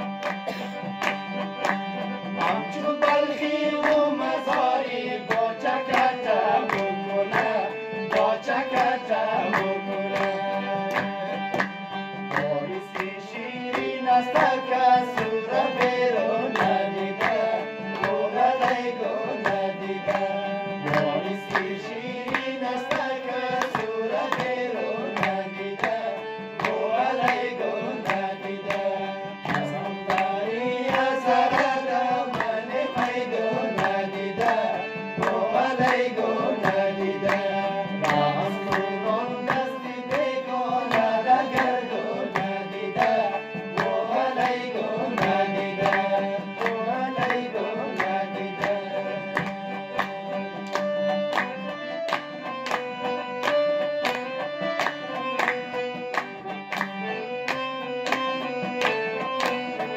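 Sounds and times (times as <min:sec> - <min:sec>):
melodic instrumental accompaniment: 0:00.0 - 0:59.9
man singing into a microphone: 0:02.4 - 0:11.6, 0:12.2 - 0:50.6
drum rhythm: 0:20.8 - 0:21.8.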